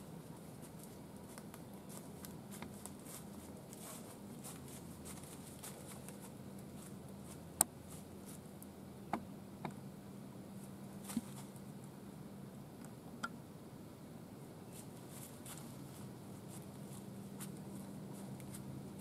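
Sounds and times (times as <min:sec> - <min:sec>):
deer walking through dry leaves: 0:00.3 - 0:08.4, 0:14.7 - 0:19.0.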